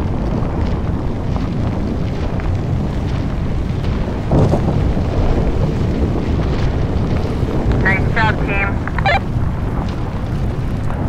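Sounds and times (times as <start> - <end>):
building collapsing rumble: 0.0 - 11.0.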